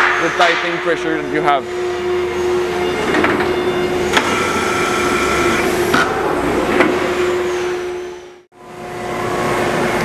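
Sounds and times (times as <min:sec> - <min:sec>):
hydraulic power unit humming: 0:00.0 - 0:10.0
hydraulic tightening gun whine: 0:04.1 - 0:05.8.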